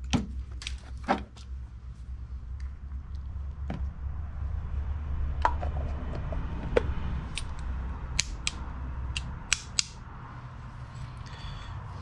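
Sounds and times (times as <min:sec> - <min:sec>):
low hum: 0:00.0 - 0:12.0
sharp plastic-and-metal clicks: 0:07.3 - 0:10.0.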